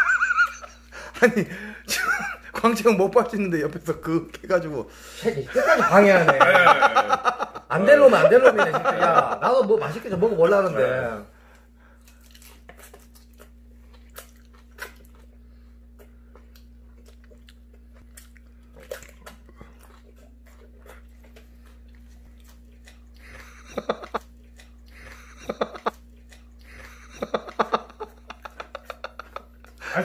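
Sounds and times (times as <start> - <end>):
faint low hum: 0.0 - 30.0
person chewing with crisp crunches: 11.3 - 29.9.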